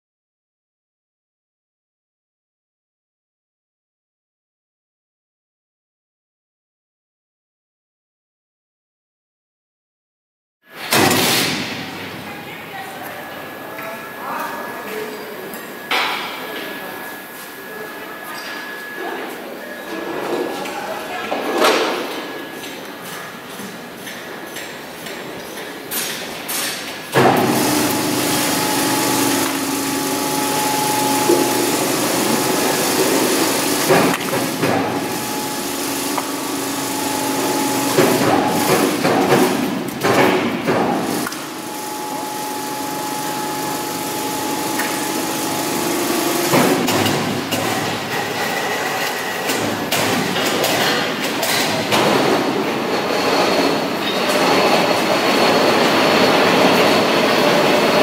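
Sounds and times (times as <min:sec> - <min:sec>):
machinery drone with hiss: 0:27.2 - 0:39.0, 0:41.3 - 0:49.9.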